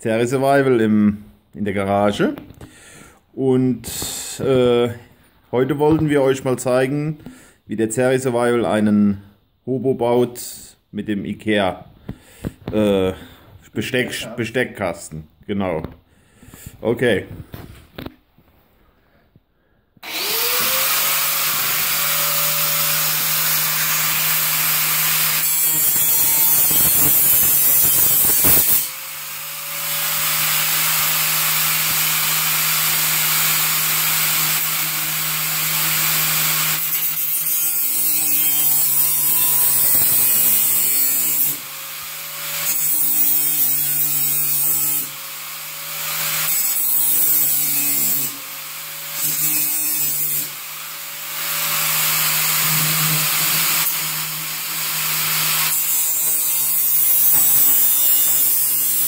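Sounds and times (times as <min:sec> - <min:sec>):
angle grinder cutting metal: 0:20.0 - 0:59.0.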